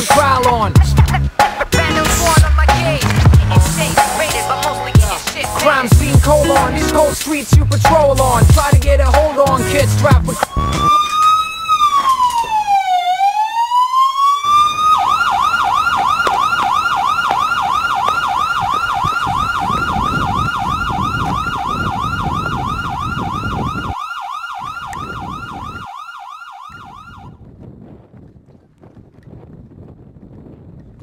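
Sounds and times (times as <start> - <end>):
emergency siren wailing and yelping: 8.4 - 27.4.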